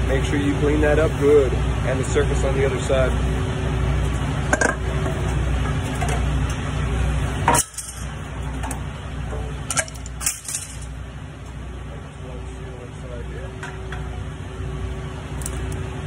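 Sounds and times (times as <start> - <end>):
low steady hum: 0.0 - 16.0
metal tool clinks and knocks: 9.7 - 10.9.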